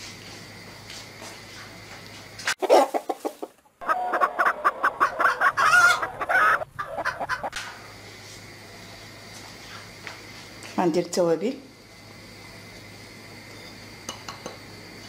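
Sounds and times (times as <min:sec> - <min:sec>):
chickens clucking: 0:02.5 - 0:07.6.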